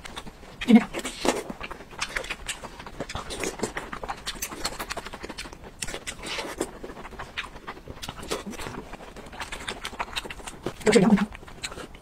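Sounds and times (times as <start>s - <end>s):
wet chewing and lip smacking: 0.0s - 12.0s.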